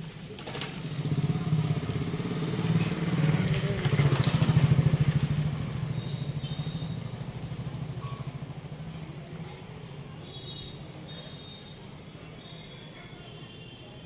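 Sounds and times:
motorcycle engine running: 0.7s - 9.2s.

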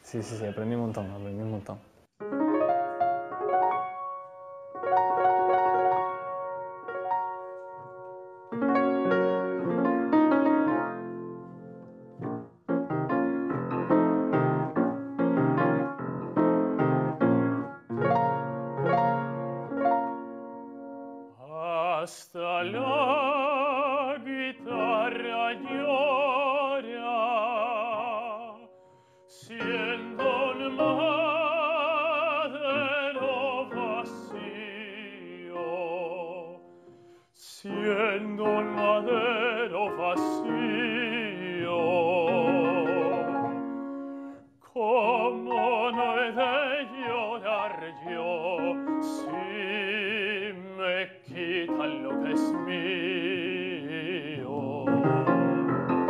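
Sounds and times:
piano: 0.0s - 56.0s
man singing operatically: 21.4s - 36.7s, 37.4s - 43.8s, 44.6s - 55.6s.

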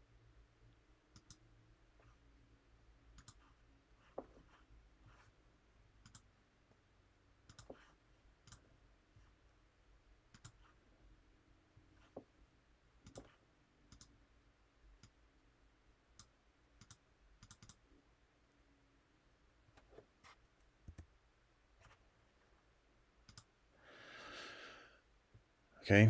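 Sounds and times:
low room hum: 0.0s - 26.0s
computer mouse clicks: 1.1s - 1.4s, 3.1s - 3.5s, 6.0s - 6.3s, 7.4s - 8.7s, 10.3s - 10.7s, 13.0s - 14.2s, 16.2s - 17.8s, 23.2s - 23.5s.

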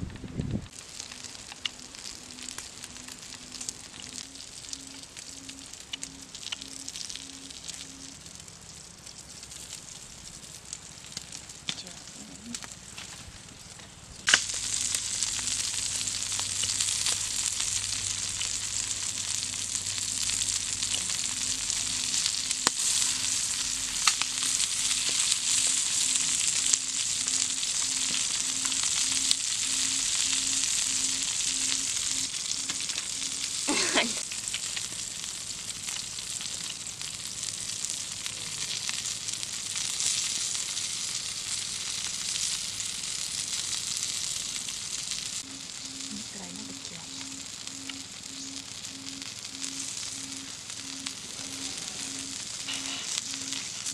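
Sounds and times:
frogs sizzling on hot stone: 0.0s - 53.9s.

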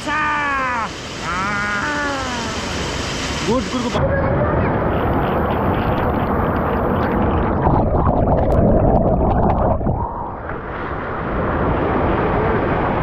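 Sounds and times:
river water rushing: 0.1s - 7.5s.

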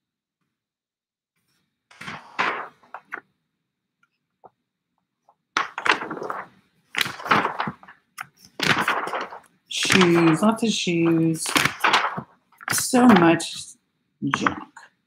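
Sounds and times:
magazine pages rustling: 1.9s - 3.3s, 5.6s - 14.8s.

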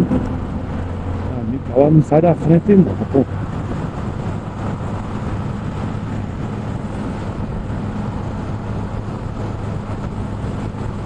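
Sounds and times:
motorcycle engine cruising: 0.0s - 11.0s
wind and road noise: 0.0s - 11.0s.

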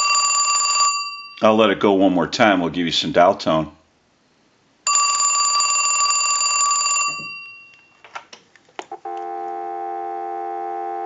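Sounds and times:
telephone bell ringing: 0.0s - 1.4s, 4.9s - 8.0s
dial tone: 9.1s - 11.0s.

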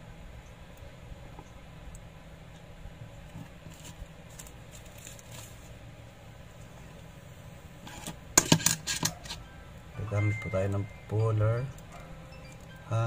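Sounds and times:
plastic sheet crinkling: 3.7s - 5.8s.

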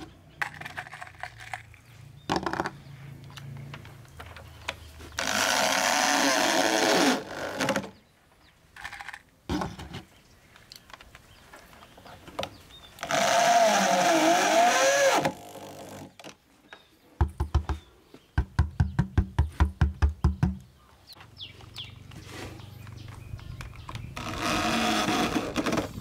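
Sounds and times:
cordless drill whining: 13.0s - 16.1s.

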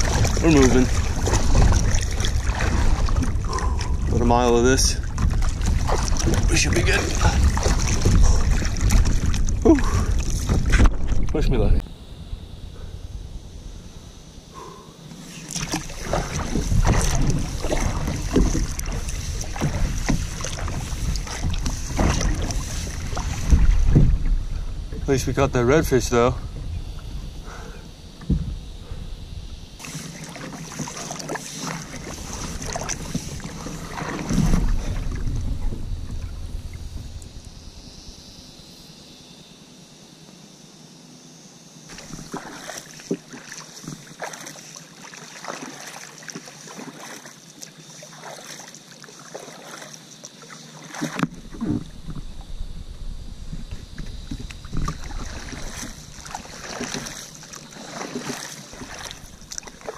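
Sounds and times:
paddle strokes splashing water: 0.0s - 11.4s, 14.5s - 26.0s, 29.8s - 37.3s, 41.9s - 52.5s, 53.6s - 59.9s.

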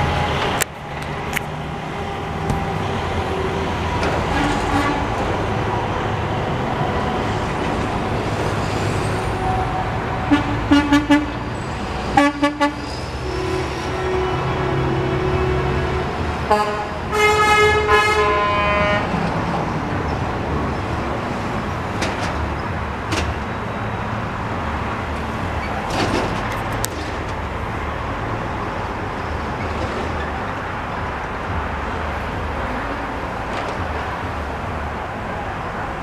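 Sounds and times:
traffic: 0.0s - 36.0s
truck engines running: 0.0s - 36.0s
truck horns honking: 2.0s - 5.4s, 9.2s - 19.2s.

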